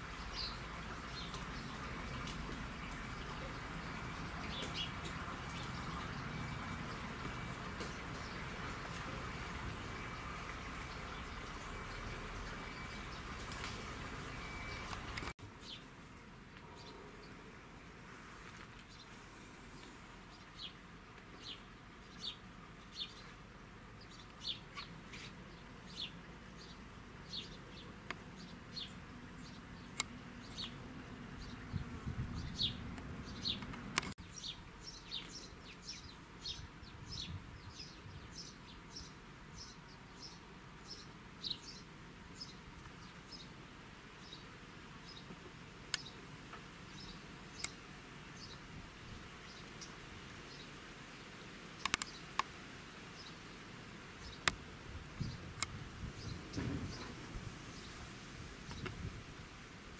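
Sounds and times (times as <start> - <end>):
small bird chirping: 24.0 - 27.8
sharp clicks: 51.8 - 52.5.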